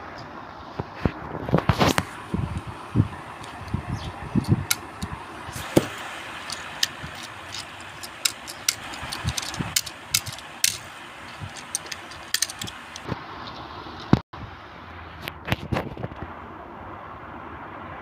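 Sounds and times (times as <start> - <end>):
toy cars clicking on table: 5.8 - 13.1.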